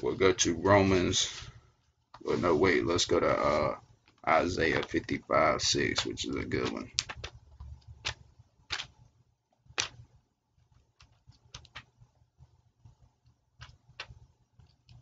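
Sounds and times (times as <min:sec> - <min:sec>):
low room hum: 0:00.0 - 0:15.0
clicks and taps at computer: 0:05.9 - 0:09.0, 0:09.6 - 0:10.1, 0:11.0 - 0:12.0, 0:12.8 - 0:15.0.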